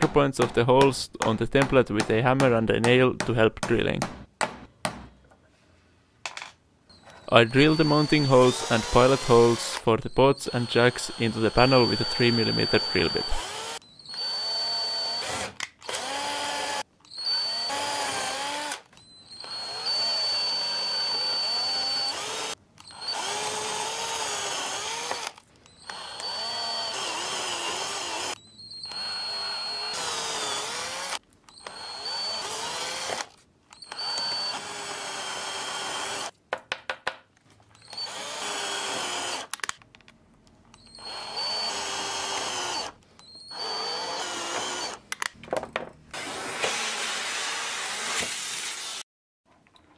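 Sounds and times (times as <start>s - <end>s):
drill drilling through steel sheet: 7.0s - 9.9s, 10.5s - 36.3s, 37.8s - 39.5s, 40.8s - 45.0s.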